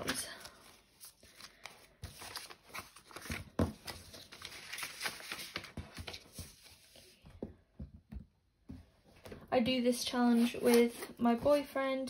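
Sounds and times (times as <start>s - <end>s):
paper envelope rustling: 0.0s - 7.2s.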